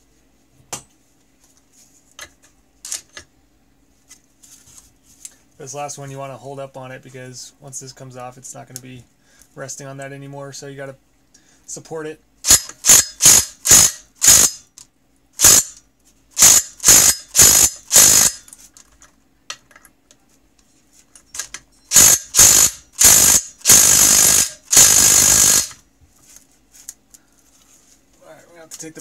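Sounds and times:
impact wrench hammering: 12.4s - 14.7s, 15.4s - 15.8s, 16.4s - 18.5s, 21.9s - 25.8s.

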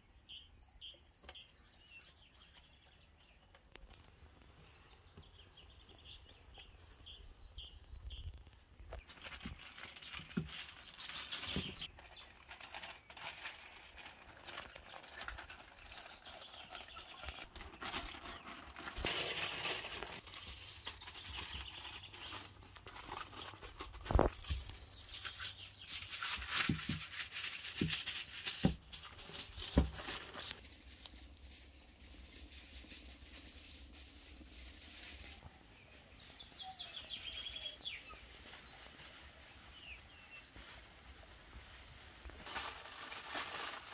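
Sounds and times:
paper and foil crinkling: 8.9s - 35.4s, 37.8s - 43.9s.

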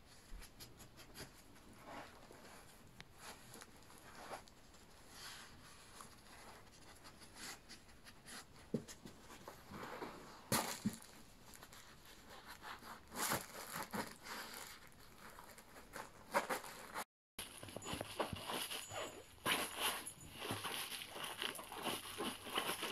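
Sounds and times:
fabric rustling and crinkling: 9.1s - 22.9s.

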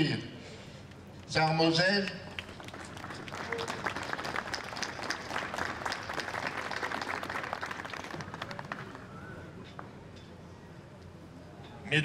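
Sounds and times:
crowd applauding: 2.3s - 9.3s.

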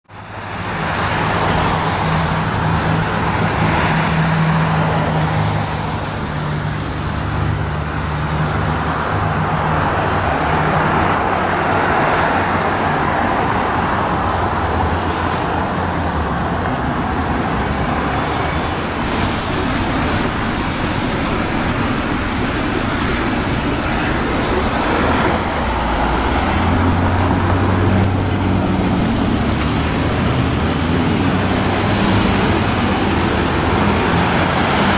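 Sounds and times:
road traffic: 0.0s - 34.9s
low engine hum: 18.8s - 34.9s.

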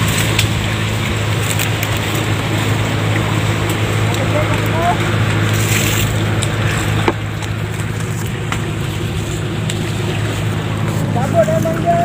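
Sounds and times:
boat engine droning: 0.0s - 12.0s
rushing water noise: 0.0s - 12.0s.

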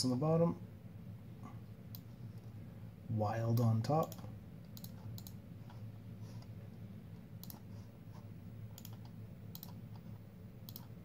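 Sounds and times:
low steady hum: 0.0s - 11.0s
mouse and keyboard clicks: 3.6s - 5.4s, 7.4s - 7.7s, 8.8s - 10.1s, 10.7s - 10.9s.

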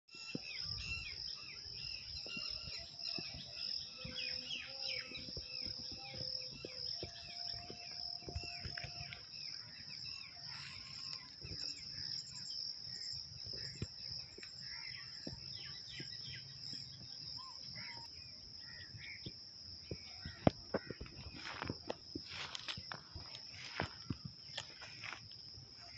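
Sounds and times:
insect shrill drone: 0.1s - 19.2s
birds chirping: 0.1s - 25.9s.

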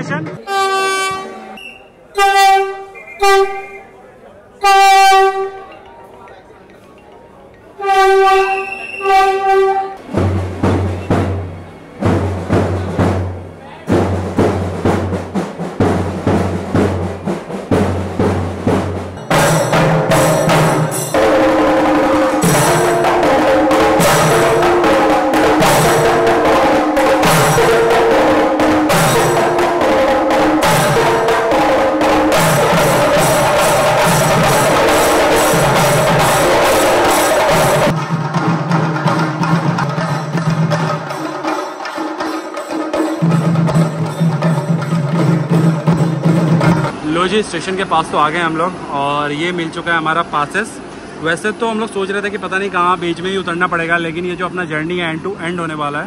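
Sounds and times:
drums beaten with sticks: 4.6s - 47.2s.

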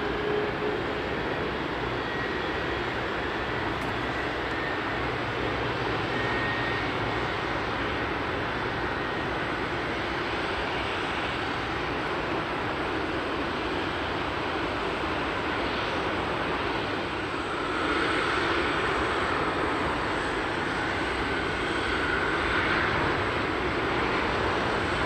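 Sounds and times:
jet airliner engine noise: 0.0s - 25.0s.

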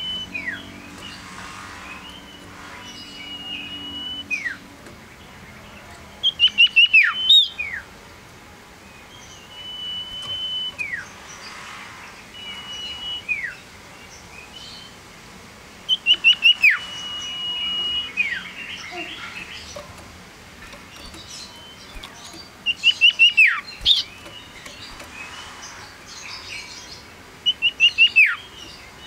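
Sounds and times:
bird high whistle: 1.9s - 4.6s, 6.2s - 7.8s, 9.5s - 11.0s, 12.3s - 13.6s, 15.9s - 19.1s, 27.4s - 28.4s.

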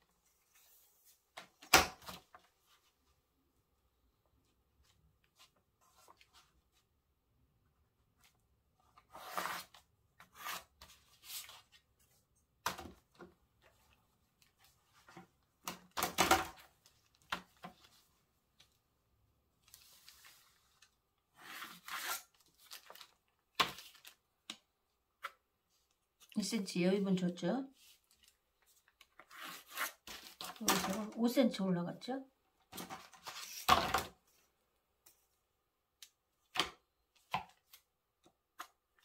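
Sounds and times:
paper rustling: 4.8s - 6.9s, 32.8s - 34.4s
pencil drawing lines: 9.1s - 10.7s, 21.3s - 22.3s.

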